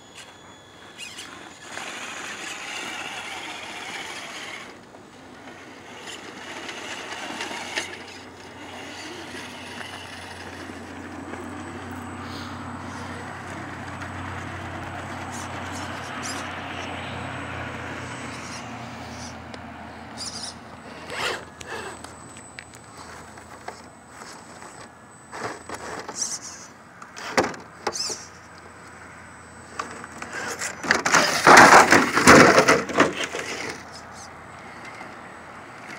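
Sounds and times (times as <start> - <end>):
electric motor whining: 0.0 - 28.7
tyres scraping on stone: 29.8 - 34.3.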